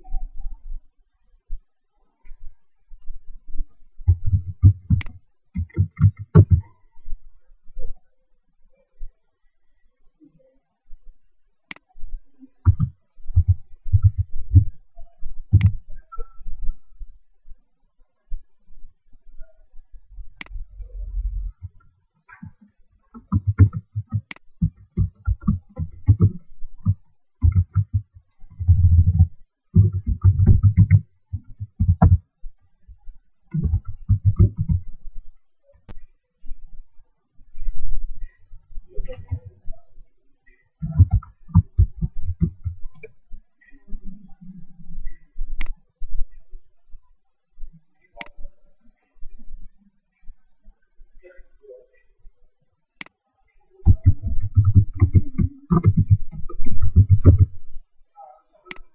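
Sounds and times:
laptop keyboard typing: 0:23.2 - 0:32.2, 0:33.5 - 0:34.8, 0:53.9 - 0:57.5.

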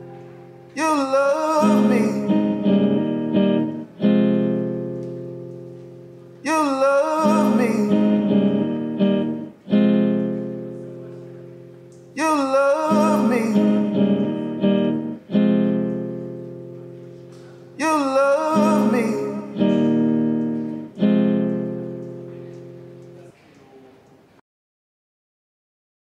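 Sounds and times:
acoustic guitar strumming chords: 0:00.0 - 0:23.3
man singing: 0:00.6 - 0:03.1, 0:06.4 - 0:08.9, 0:12.2 - 0:14.6, 0:17.7 - 0:20.2.

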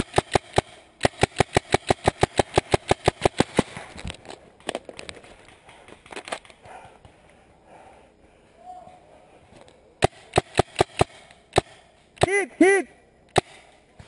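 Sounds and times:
paintball marker firing: 0:00.0 - 0:03.9, 0:10.0 - 0:12.4, 0:13.3 - 0:14.0
sharp clicks: 0:00.0 - 0:06.7, 0:09.6 - 0:12.4.

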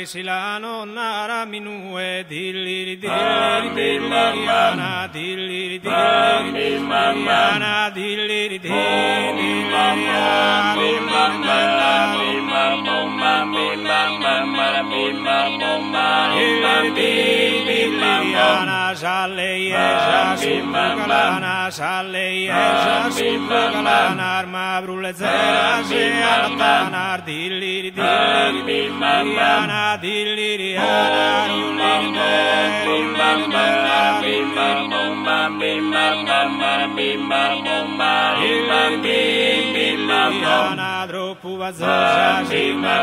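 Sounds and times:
voices chanting a folk song: 0:02.3 - 0:43.0
steady held drone: 0:03.0 - 0:04.9, 0:05.9 - 0:07.7, 0:08.7 - 0:18.7, 0:19.7 - 0:21.4, 0:22.5 - 0:24.2, 0:28.0 - 0:29.7, 0:30.8 - 0:40.8, 0:41.8 - 0:43.0.

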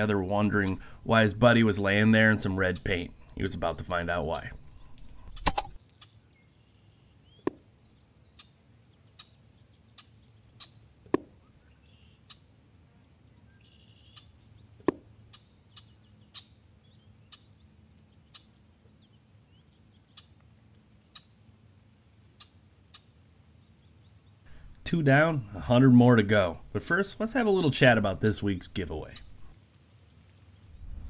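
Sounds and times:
faint bird chirps: 0:04.4 - 0:24.8, 0:29.0 - 0:31.0
sharp clicks and knocks: 0:04.6 - 0:05.8.

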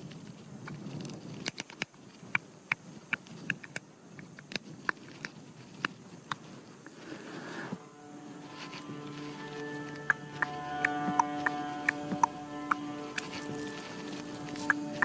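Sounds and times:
mouth clicks: 0:09.8 - 0:13.7.

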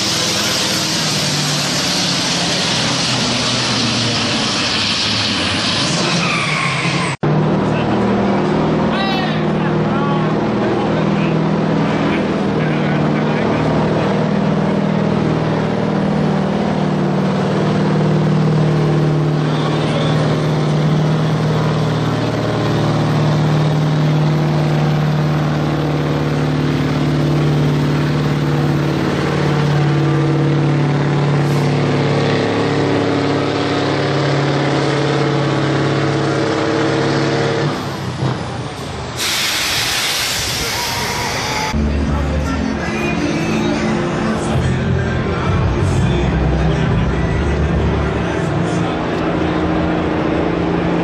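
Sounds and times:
diesel truck engine under load: 0:00.0 - 0:51.0
loud air hiss: 0:39.2 - 0:41.7.

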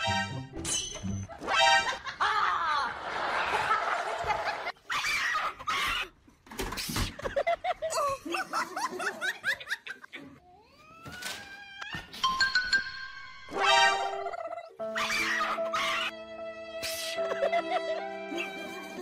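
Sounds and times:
person laughing: 0:01.9 - 0:03.0, 0:14.2 - 0:14.8, 0:17.0 - 0:19.0.

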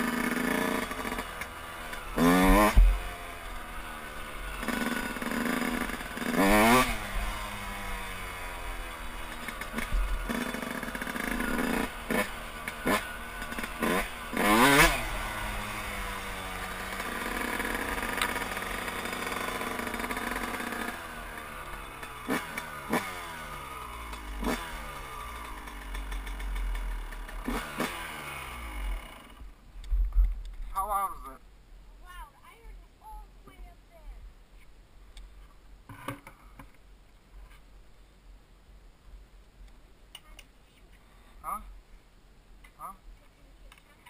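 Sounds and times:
dirt bike engine revving: 0:00.0 - 0:29.5.

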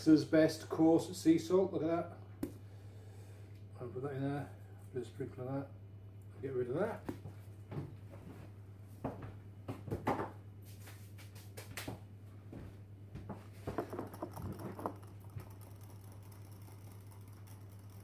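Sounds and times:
steady low hum: 0:00.0 - 0:18.0
chair knocks and scrapes: 0:13.3 - 0:15.0.

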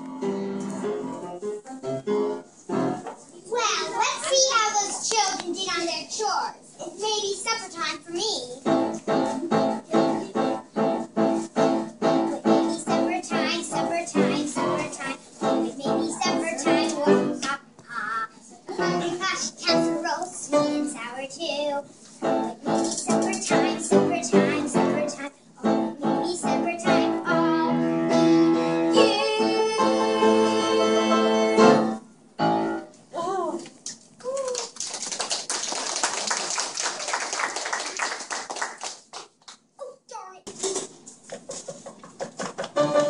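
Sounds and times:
audience clapping: 0:34.2 - 0:39.7.

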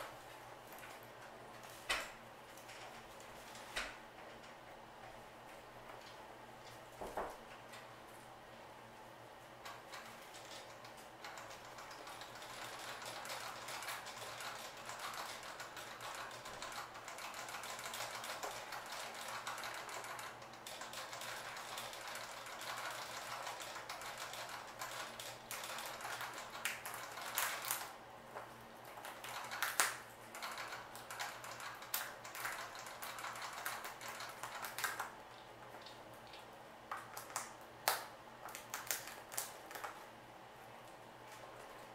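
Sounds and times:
rat gnawing seeds: 0:09.6 - 0:41.9.

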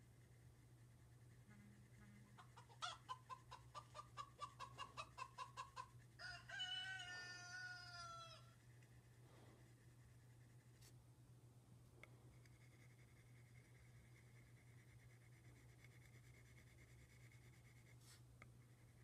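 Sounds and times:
chicken long call: 0:02.0 - 0:08.5
chicken clucking: 0:02.3 - 0:05.9.

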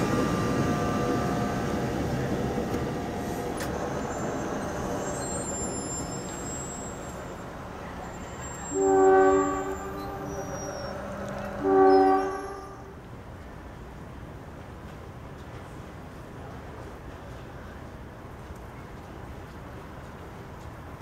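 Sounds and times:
passing train rumble: 0:00.0 - 0:21.0
train horn blasts: 0:08.4 - 0:13.0.

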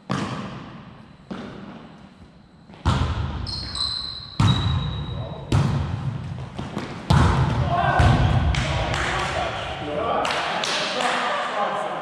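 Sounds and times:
volleyball hits echoing: 0:00.1 - 0:01.9, 0:02.7 - 0:03.5, 0:04.4 - 0:11.0
high steady squeal: 0:03.4 - 0:05.4.

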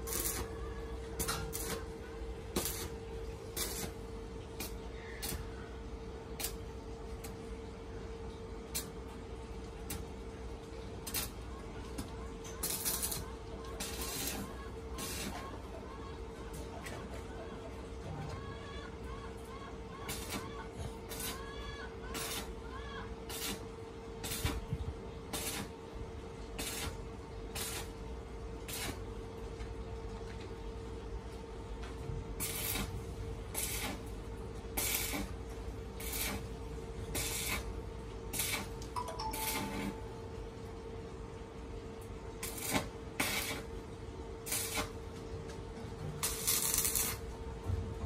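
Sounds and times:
steady hum: 0:00.0 - 0:15.3.

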